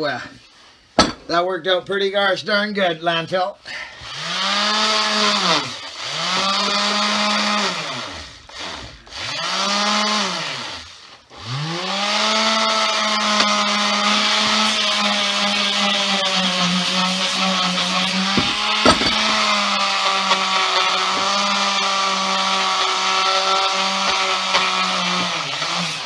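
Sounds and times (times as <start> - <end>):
electric sander whining: 4.0 - 26.0.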